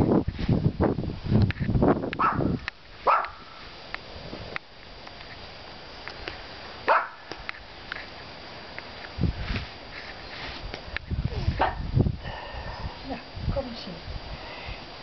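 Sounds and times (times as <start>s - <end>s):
dog barking: 2.2s - 3.4s, 6.9s - 7.2s.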